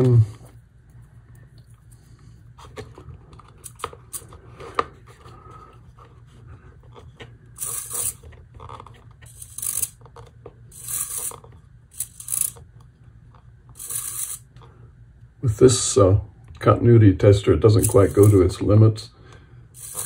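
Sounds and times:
servo motor whirring: 7.6s - 8.2s, 9.3s - 10.0s, 10.7s - 11.4s, 12.0s - 12.6s, 13.8s - 14.4s, 19.8s - 20.0s.

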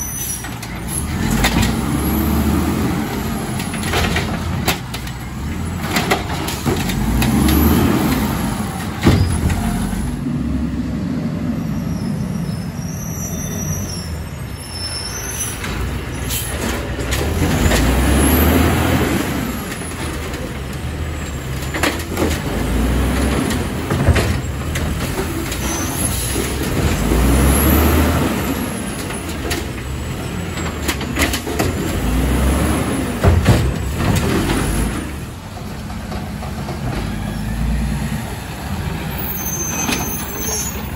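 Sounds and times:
garbage truck engine revving: 0.0s - 12.8s, 15.5s - 40.9s
sharp knocks of carts: 0.4s - 10.3s, 15.5s - 38.4s.

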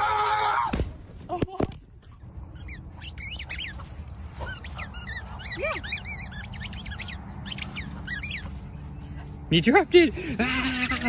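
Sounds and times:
squeaky toy squeaking: 2.4s - 9.2s, 10.5s - 11.0s.

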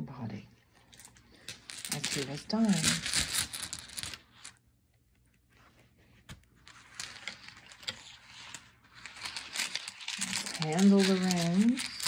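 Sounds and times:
stones rustling: 0.9s - 4.6s, 6.6s - 12.0s
stones clicking: 1.0s - 4.6s.

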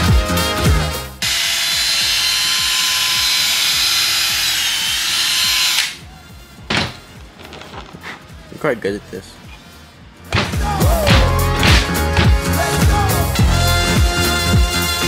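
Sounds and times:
music with a beat: 0.0s - 1.1s, 10.2s - 15.0s
high-pitched power tool running: 1.2s - 6.0s.

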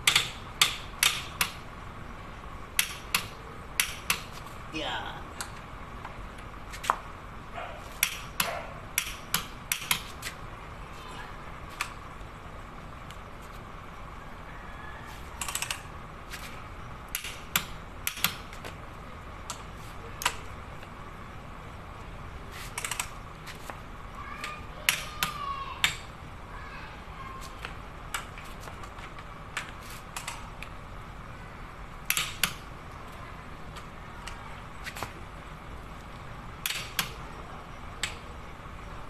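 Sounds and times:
steady low hum: 0.0s - 39.0s
ratchet wrench clicking: 15.4s - 15.8s, 22.8s - 23.1s.

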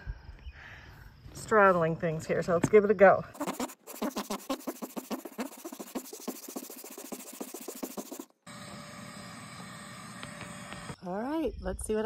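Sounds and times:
hand sanding wood: 3.4s - 8.3s.

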